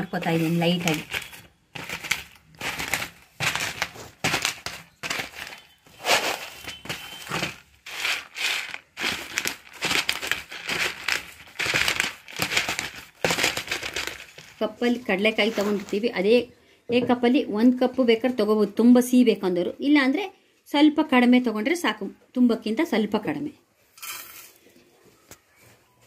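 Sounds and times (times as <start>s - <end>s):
peanuts crunching under rolling pin: 0.0s - 16.1s.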